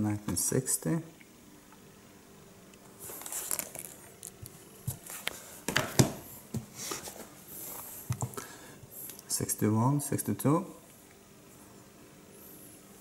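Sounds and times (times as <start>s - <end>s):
taps and knocks on books: 5.7s - 6.7s
book covers sliding and rubbing: 6.7s - 8.0s.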